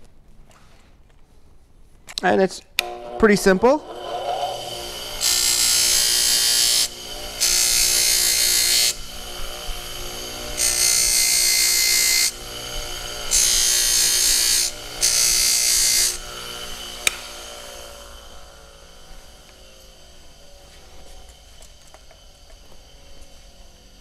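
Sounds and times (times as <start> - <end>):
grinder motor hum: 2.8 - 24.0
metal grinding hiss: 3.2 - 24.0
sharp click: 17.0 - 17.3.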